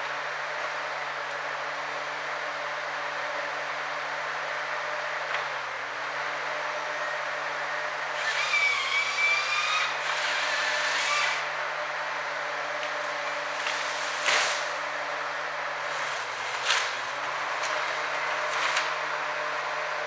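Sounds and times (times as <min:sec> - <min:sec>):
harvester diesel engine: 0:00.0 - 0:20.0
sharp wood cracks: 0:12.9 - 0:14.8, 0:16.5 - 0:19.0.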